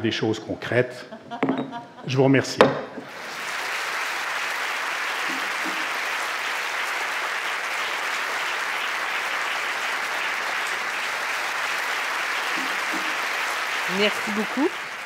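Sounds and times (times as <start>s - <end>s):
large audience applauding: 3.0s - 15.0s.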